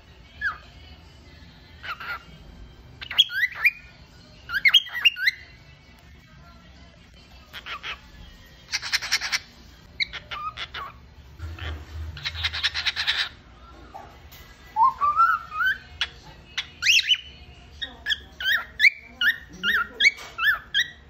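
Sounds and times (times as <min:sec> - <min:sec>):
cockatiel chattering: 0:01.8 - 0:02.3, 0:03.0 - 0:03.9, 0:04.5 - 0:05.4, 0:07.5 - 0:13.4, 0:15.2 - 0:21.0
cockatiel whistled notes: 0:14.8 - 0:16.0.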